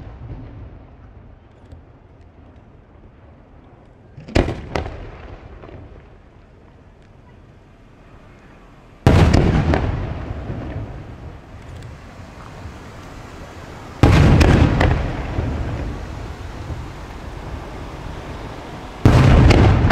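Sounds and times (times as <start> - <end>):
fireworks bursting: 4.2 - 6.9, 7.8 - 19.9.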